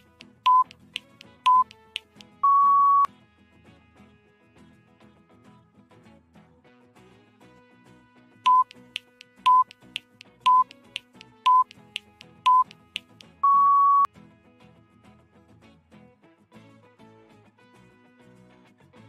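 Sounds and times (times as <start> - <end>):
soft background music: 0.0 - 4.6, 7.9 - 13.5
short timer beeps: 0.3 - 3.1, 8.5 - 14.1
longer higher timer beep: 0.4 - 0.7, 1.4 - 1.8, 2.4 - 3.1, 8.5 - 9.8, 10.4 - 10.8, 11.4 - 11.7, 12.4 - 14.1.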